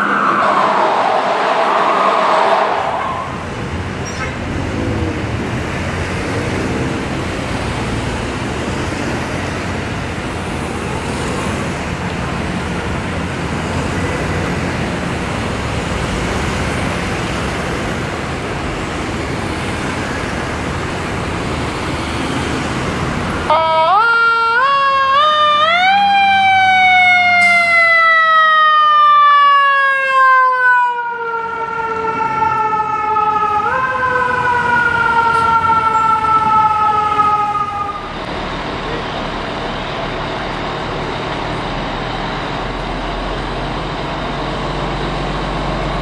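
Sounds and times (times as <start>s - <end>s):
city street traffic rumble: 0.0s - 46.0s
fire engine siren wail: 0.0s - 46.0s.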